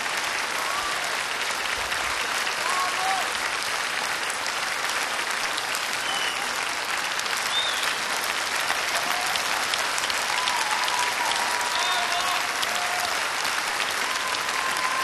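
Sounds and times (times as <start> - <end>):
audience applauding: 0.0 - 15.0
short high calls from audience: 8.7 - 15.0.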